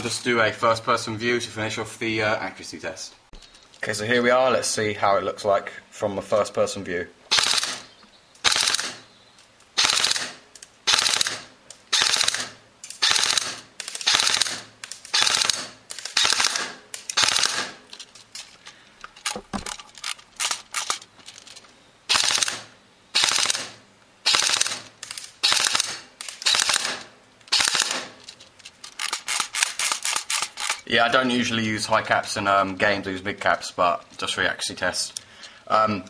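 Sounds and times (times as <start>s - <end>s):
airsoft gun firing bursts: 7.3s - 9.0s, 9.8s - 17.8s, 22.1s - 28.2s.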